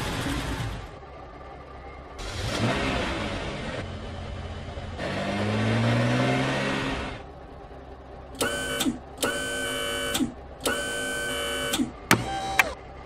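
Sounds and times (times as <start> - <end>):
cartoon car engine revving: 2.2 - 3.9, 5.0 - 7.2
short mechanical whirrs: 8.4 - 12.8.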